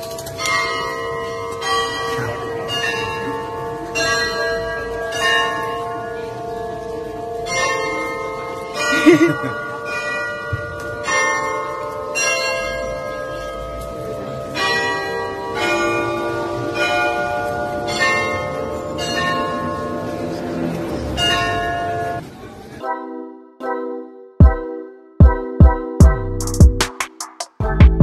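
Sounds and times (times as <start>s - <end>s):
bells playing a slow tune: 0.0s - 22.2s.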